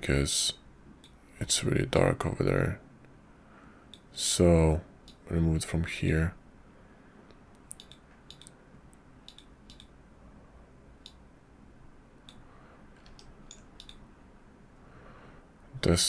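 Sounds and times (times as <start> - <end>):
low steady hiss: 0.0 - 16.0
computer mouse clicks: 7.3 - 8.6, 9.2 - 10.0, 11.0 - 11.2, 12.2 - 12.4, 13.0 - 14.1.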